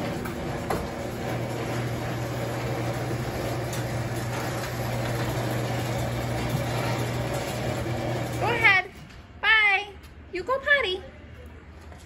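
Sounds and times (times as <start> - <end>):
motor humming: 0.0 - 8.8.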